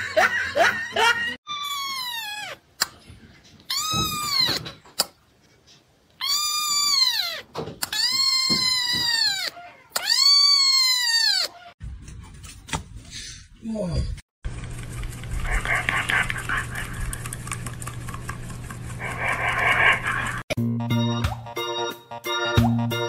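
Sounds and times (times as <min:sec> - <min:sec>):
kitten meowing loudly: 0:06.2 - 0:11.5.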